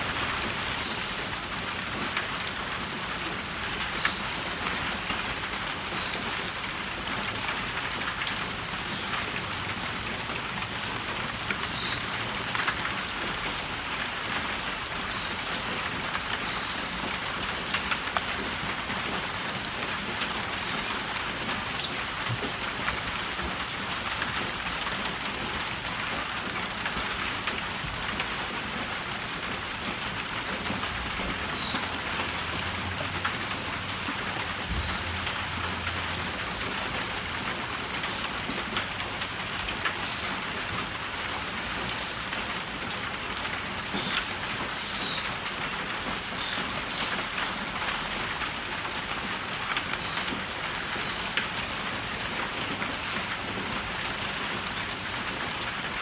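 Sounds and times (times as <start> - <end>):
rain on a tin roof: 0.0 - 56.0.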